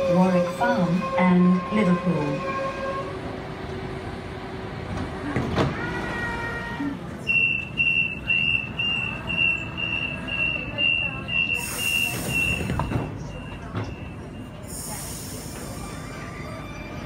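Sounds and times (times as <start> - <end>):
low train hum: 0.0 - 17.0
train door warning beeps: 7.2 - 15.8.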